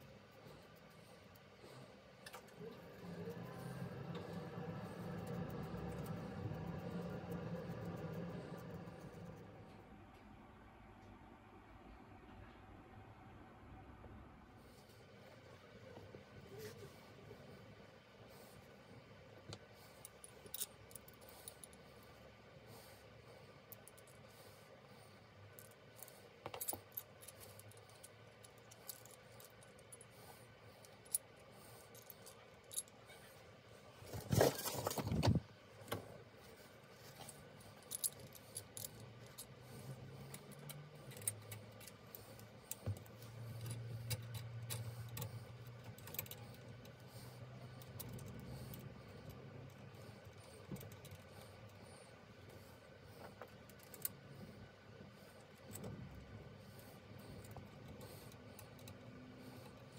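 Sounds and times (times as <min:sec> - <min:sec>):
small metal parts clinking: 0:25.5 - 0:30.1, 0:30.8 - 0:33.4, 0:37.1 - 0:46.8.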